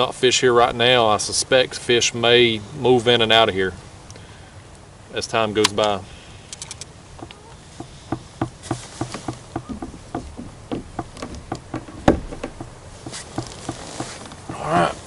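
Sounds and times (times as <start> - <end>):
fishing rod and reel clicks: 5.8 - 6.9
sharp knock on plastic kayak: 8.1 - 12.7.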